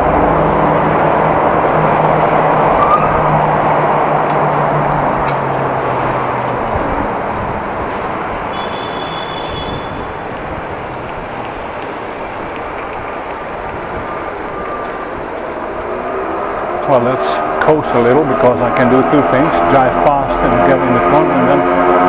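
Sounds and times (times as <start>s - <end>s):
road traffic: 0.0s - 22.0s.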